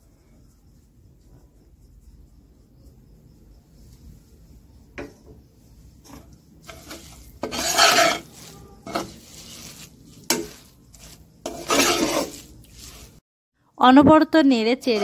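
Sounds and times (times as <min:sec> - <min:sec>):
spatula scraping a pan: 0:05.7 - 0:13.2, 0:14.7 - 0:15.0.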